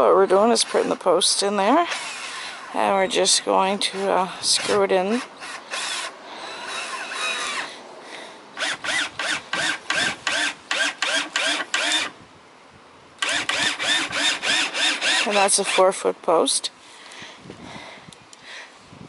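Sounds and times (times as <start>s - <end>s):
cordless drill driving screw into wood: 1.8s - 2.8s, 4.5s - 7.8s, 8.6s - 12.2s, 13.2s - 16.0s.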